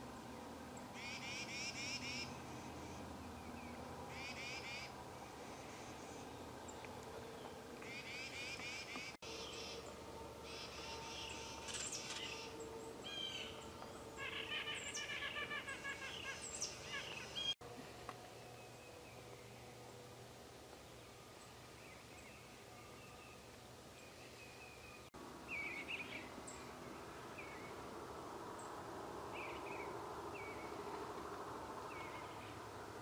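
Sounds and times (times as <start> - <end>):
songbirds chattering: 0.9 - 17.6.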